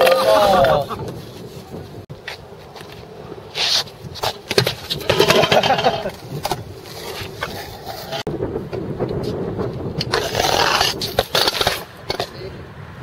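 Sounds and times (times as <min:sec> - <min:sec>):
scooter wheels rolling on concrete: 0:00.0 - 0:13.0
scooter clattering on concrete: 0:03.6 - 0:12.6.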